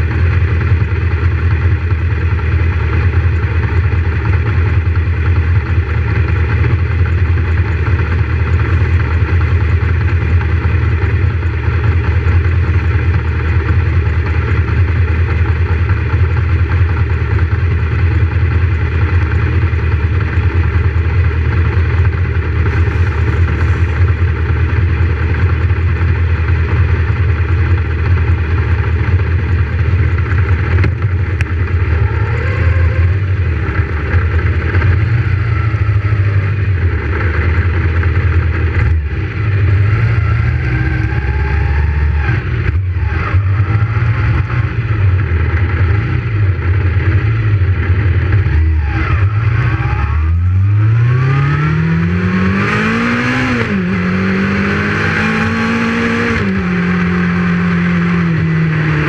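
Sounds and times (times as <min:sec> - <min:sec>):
motorcycle engines idling: 0:00.0 - 0:50.9
engine revving: 0:21.4 - 0:26.9, 0:28.0 - 0:59.0.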